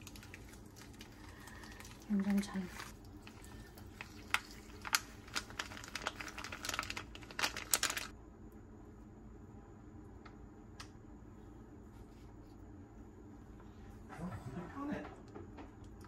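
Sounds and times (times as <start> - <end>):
crinkling and clicks of handling: 0.0 - 8.1.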